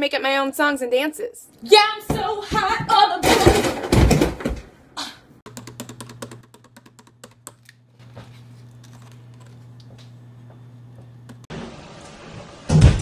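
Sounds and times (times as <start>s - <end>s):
computer keyboard typing: 5.5s - 7.6s.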